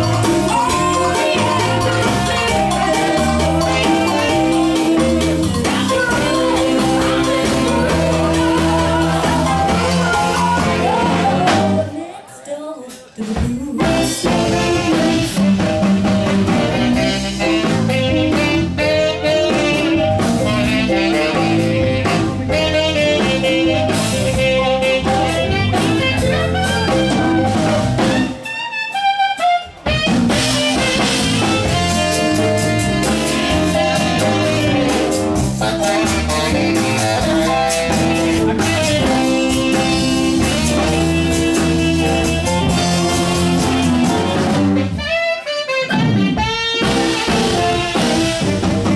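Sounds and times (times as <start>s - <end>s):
hand drum: 0.0s - 11.8s
electric bass: 0.0s - 11.9s, 13.8s - 28.5s, 29.8s - 48.9s
drum kit: 0.0s - 12.0s, 12.8s - 48.9s
saxophones: 0.0s - 12.2s, 13.9s - 48.9s
keyboards: 0.0s - 48.9s.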